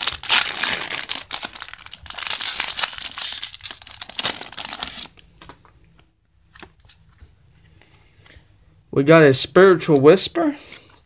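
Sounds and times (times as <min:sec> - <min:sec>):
foil wrapper tearing and crinkling: 0:00.0 - 0:05.2.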